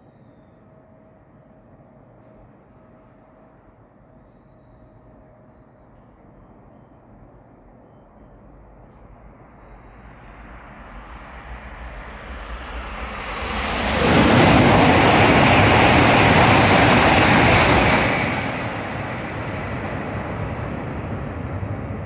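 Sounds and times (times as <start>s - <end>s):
high-speed train rushing past: 8.4s - 22.0s.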